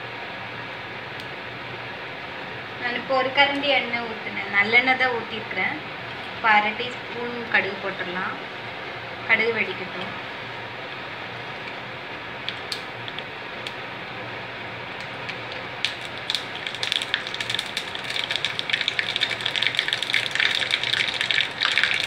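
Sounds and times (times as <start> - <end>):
oil sizzling: 9.7 - 22.0
mustard seeds crackling and popping: 15.0 - 22.0.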